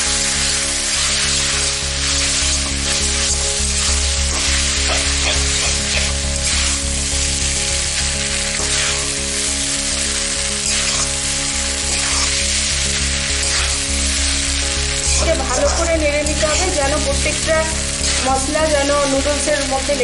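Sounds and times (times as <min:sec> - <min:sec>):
noodles sizzling in a wok: 0:00.0 - 0:20.0
metal utensil scraping a pan: 0:10.6 - 0:11.1.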